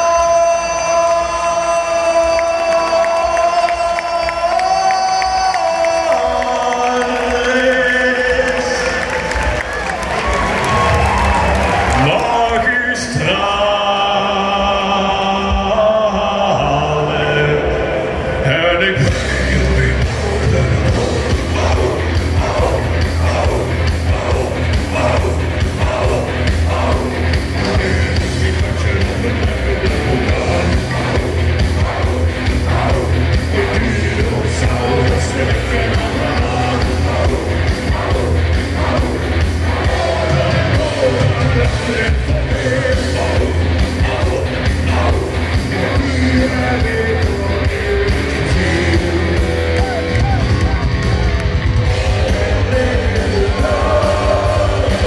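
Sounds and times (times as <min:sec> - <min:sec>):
distorted electric guitars: 0:00.0 - 0:55.0
drums: 0:00.0 - 0:55.0
sung vocals: 0:00.0 - 0:55.0
bass guitar: 0:15.5 - 0:55.0.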